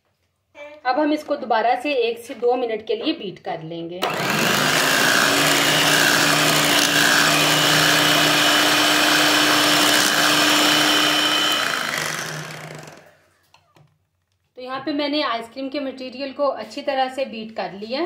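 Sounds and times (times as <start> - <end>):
electric hand mixer whining: 4.0 - 13.3.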